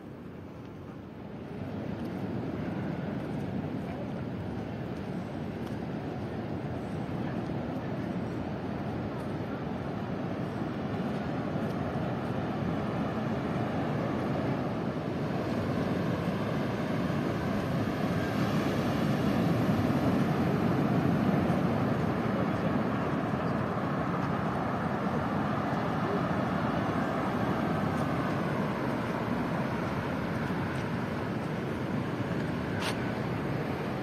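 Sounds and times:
surf breaking on stony beach: 11.8 - 34.0.

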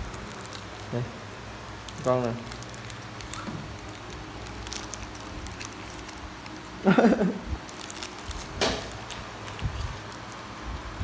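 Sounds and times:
foil wrapper crinkling: 0.0 - 11.0.

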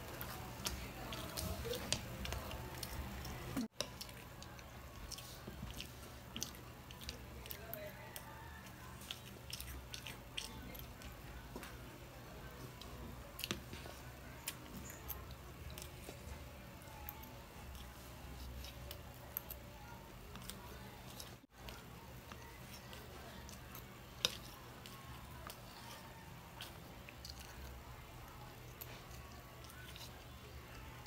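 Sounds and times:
child chewing food: 0.0 - 31.0.

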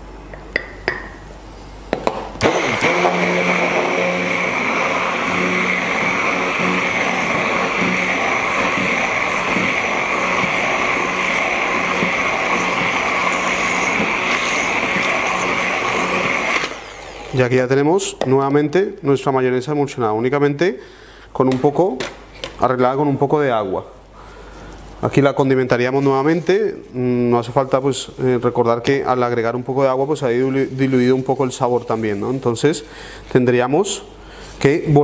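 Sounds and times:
stick blender running: 2.4 - 17.8.

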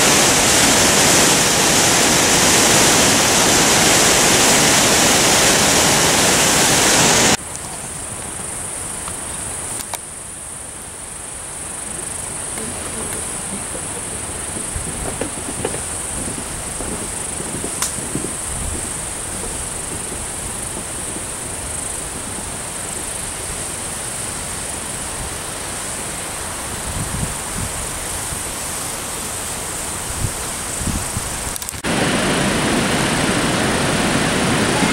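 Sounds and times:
distant rushing water: 0.0 - 34.9
rushing whitewater roar: 0.0 - 34.9
high-pitched insect drone: 8.0 - 25.9.

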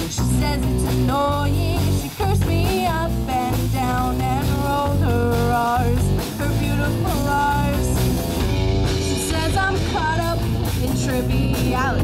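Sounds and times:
bass: 0.0 - 12.0
drum kit: 0.0 - 12.0
electric guitar: 0.0 - 12.0.

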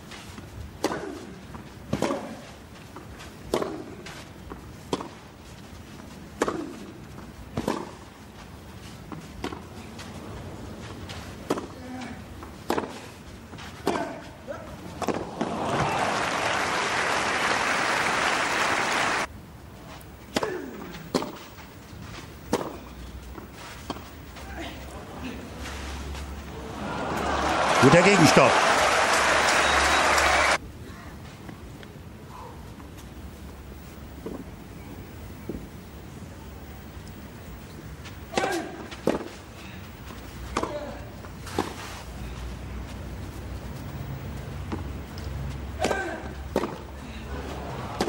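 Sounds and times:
tennis racket hitting ball: 0.8 - 2.4, 3.5 - 4.1, 4.9 - 5.2, 6.4 - 6.9, 7.5 - 8.0, 9.1 - 9.7, 11.4 - 11.8, 12.6 - 13.1, 13.8 - 14.3, 15.0 - 15.6, 20.3 - 21.5, 22.5 - 22.9, 38.3 - 39.4, 40.5 - 41.8, 45.8 - 46.9
crowd applause: 15.4 - 19.3, 26.5 - 30.6.

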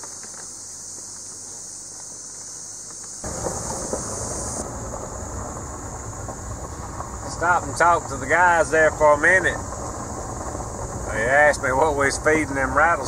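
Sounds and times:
insect chorus: 0.0 - 13.0
truck rumble inside cab: 3.2 - 13.0.

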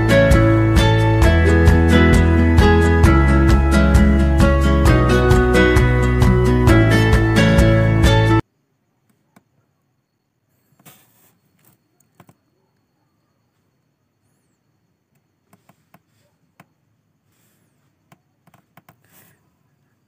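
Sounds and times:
faint clicks and taps: 18.1 - 19.1.

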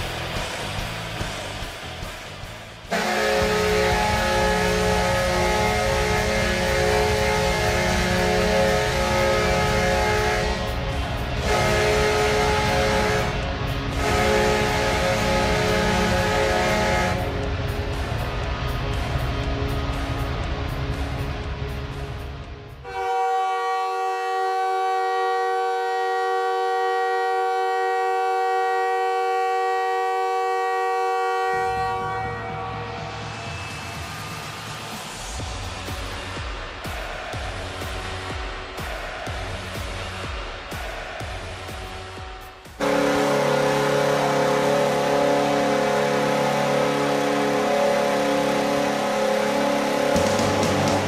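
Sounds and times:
rumble of noise: 0.0 - 22.9, 31.6 - 40.6
arena goal horn blast: 2.9 - 17.6, 22.8 - 33.5, 42.2 - 51.0.

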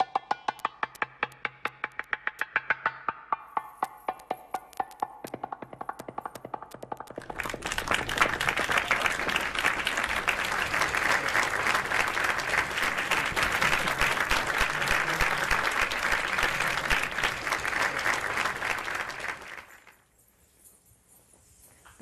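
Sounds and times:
audience applauding: 6.8 - 20.0.

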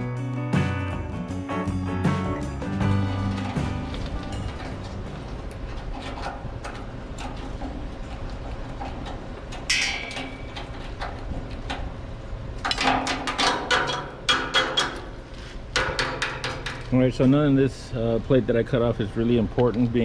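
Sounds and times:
loud metal knocks: 9.6 - 10.8, 12.6 - 16.9.

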